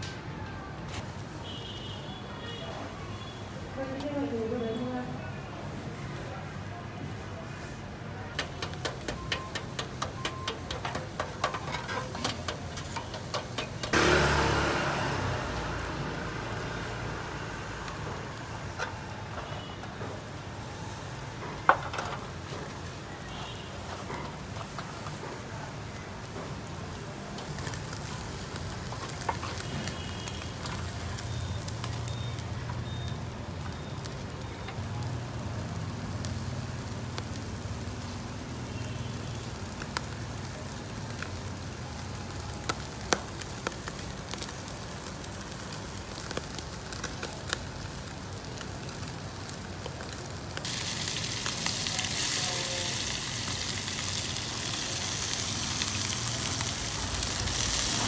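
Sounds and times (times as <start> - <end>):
fish sizzling on a grill: 1.0 - 58.0
fish frying in a pan: 8.4 - 18.8, 25.7 - 58.0.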